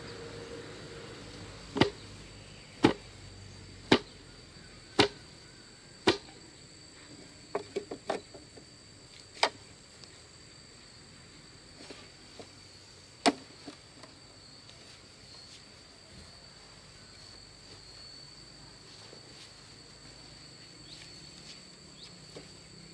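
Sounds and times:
insect buzz: 0:00.0 - 0:22.9
strikes on bamboo: 0:01.7 - 0:02.1, 0:02.8 - 0:03.2, 0:03.8 - 0:04.2, 0:05.0 - 0:05.3, 0:06.0 - 0:06.4, 0:13.2 - 0:13.8.

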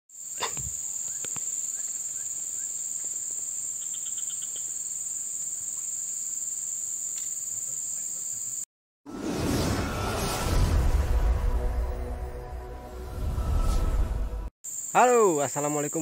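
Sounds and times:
insects buzzing chorus: 0:00.1 - 0:08.7, 0:14.6 - 0:16.0.

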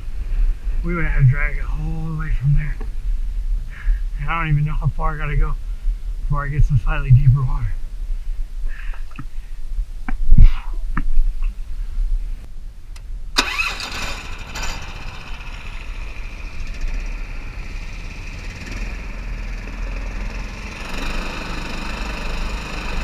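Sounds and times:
boat motor starting and running: 0:13.4 - 0:23.0.

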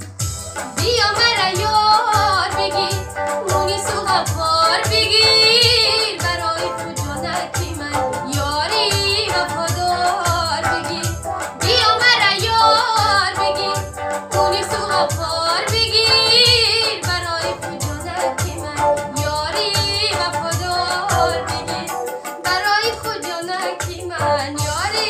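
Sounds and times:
electronic keyboard: 0:00.0 - 0:25.0
programmed drum beat: 0:00.0 - 0:25.0
woman singing with vibrato: 0:00.8 - 0:25.0.

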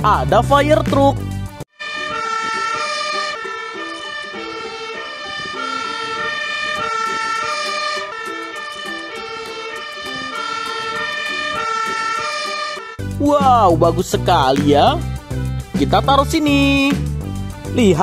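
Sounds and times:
fire engine siren: 0:01.7 - 0:13.0.

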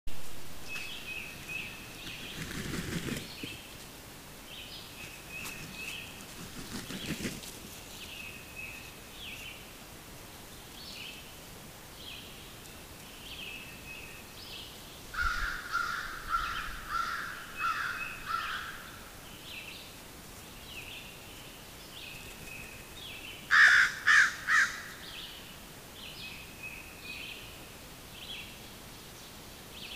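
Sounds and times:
louder lower bird calls: 0:15.1 - 0:19.2, 0:23.4 - 0:25.4
crow cawing: 0:15.2 - 0:19.0, 0:23.5 - 0:25.0.

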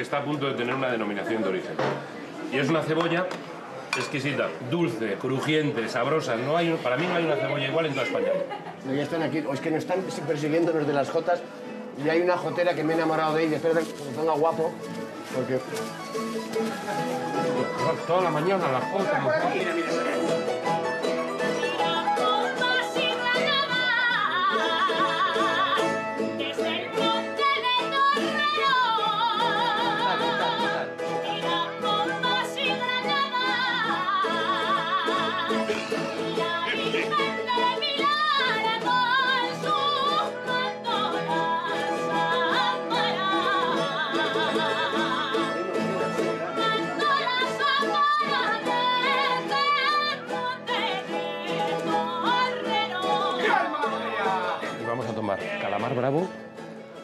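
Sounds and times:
guitar: 0:00.0 - 0:57.0
woman singing with vibrato: 0:21.5 - 0:45.7, 0:46.4 - 0:54.7.

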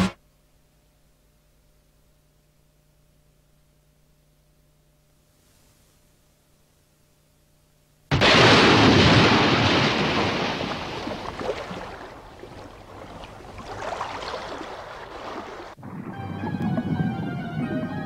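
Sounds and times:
heavy object splashing into water: 0:08.1 - 0:15.8
music: 0:15.9 - 0:18.0.

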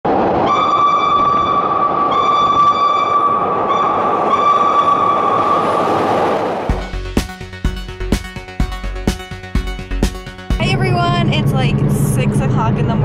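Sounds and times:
subway train rumbling: 0:00.1 - 0:07.8, 0:10.5 - 0:13.0
steady high-pitched tone: 0:00.4 - 0:07.1.

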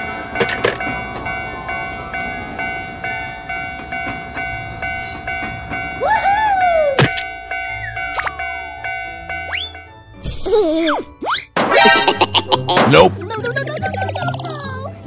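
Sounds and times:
regular train clatter: 0:00.0 - 0:09.5
background music: 0:08.4 - 0:15.0
whistle-like tone: 0:09.4 - 0:09.9.

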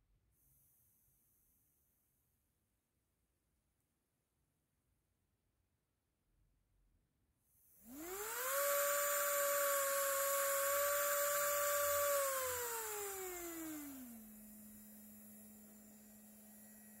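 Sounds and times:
small electric motor whining: 0:07.7 - 0:17.0.

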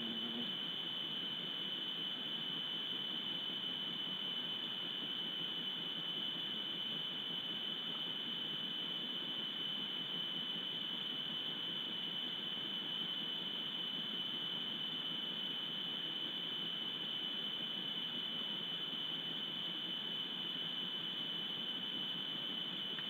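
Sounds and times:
high-pitched whine: 0:00.0 - 0:23.0.

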